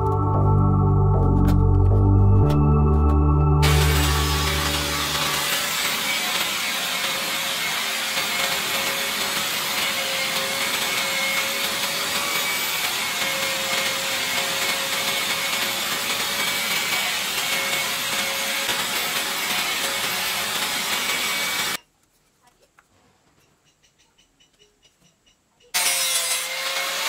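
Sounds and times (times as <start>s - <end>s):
angle grinder whining: 1.2s - 21.8s, 25.8s - 27.0s
wood being sanded: 3.6s - 21.8s, 25.8s - 27.0s.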